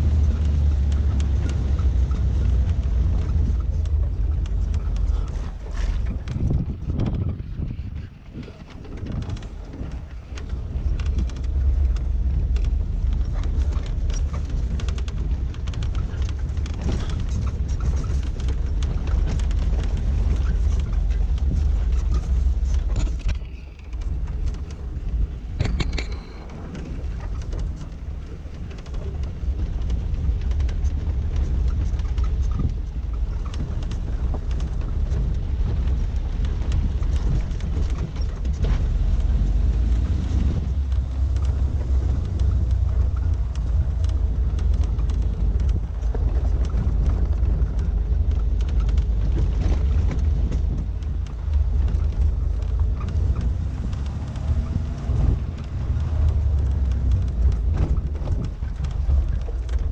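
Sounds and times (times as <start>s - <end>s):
knocks and rattles: 0.0s - 59.9s
vehicle rumbling on gravel: 0.0s - 59.9s.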